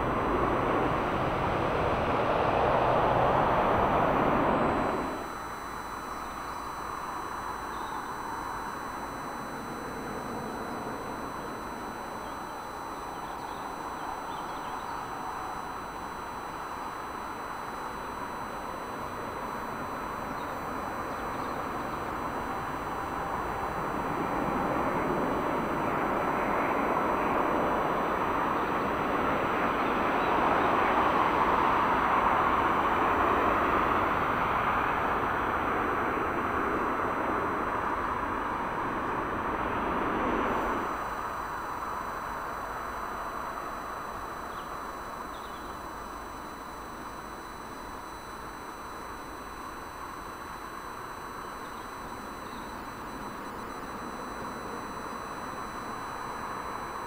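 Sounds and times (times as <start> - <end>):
jet airliner passing: 0.0 - 5.2, 23.0 - 41.0.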